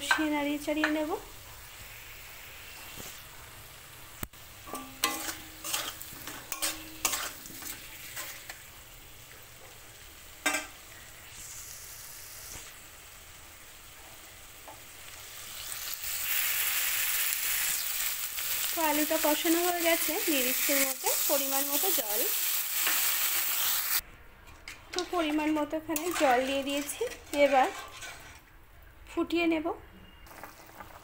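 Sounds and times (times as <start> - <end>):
frying sizzle: 0.0 - 24.0, 24.9 - 28.4, 30.3 - 31.0
water hissing in hot pan: 1.5 - 4.6, 10.2 - 24.0
spatula scraping metal pan: 4.7 - 8.6, 24.9 - 28.5.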